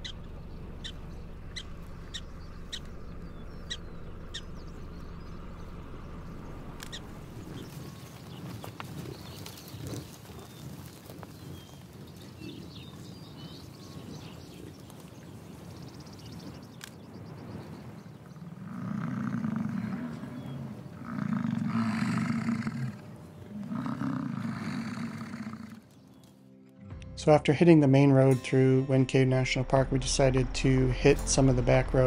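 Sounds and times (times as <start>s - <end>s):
bison bellowing: 0.0s - 14.7s, 18.4s - 26.0s.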